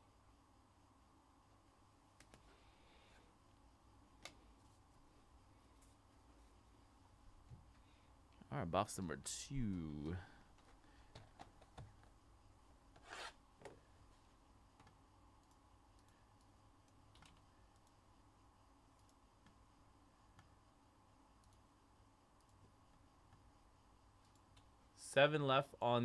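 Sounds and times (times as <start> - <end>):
short scrape: 13.0 - 13.4
faint clicks: 14.8 - 18.0, 18.9 - 19.6.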